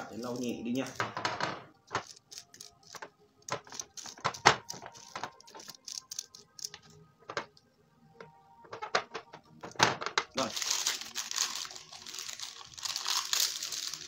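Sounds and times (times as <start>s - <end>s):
foil rustling and crinkling: 10.4s - 14.0s.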